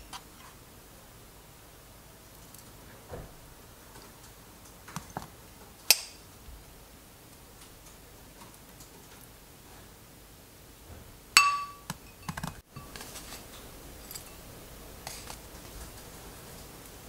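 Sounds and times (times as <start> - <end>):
ceramic dishes clinking: 11.4 - 14.5.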